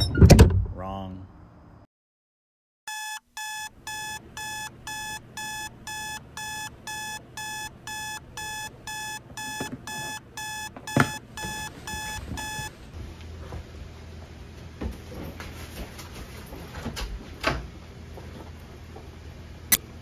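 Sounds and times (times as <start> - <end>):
alarm clock beeping: 2.9 - 12.8.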